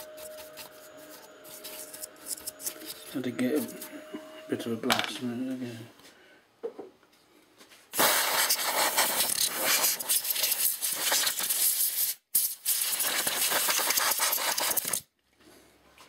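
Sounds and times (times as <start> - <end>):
air duster spraying hiss: 8.0 - 14.9.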